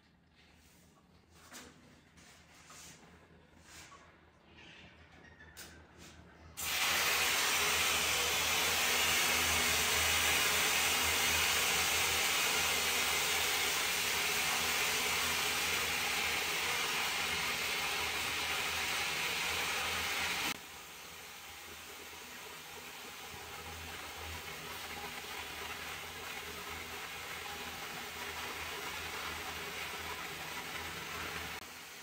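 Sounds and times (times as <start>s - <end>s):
water rushing from hose: 6.6s - 32.0s.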